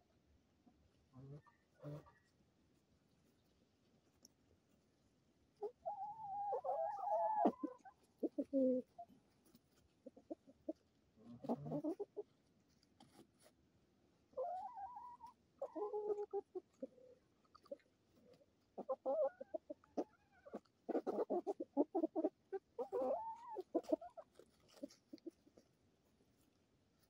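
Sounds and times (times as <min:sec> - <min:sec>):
hens clucking: 0:01.2 - 0:02.2, 0:05.6 - 0:09.2, 0:10.0 - 0:12.3, 0:14.3 - 0:25.6.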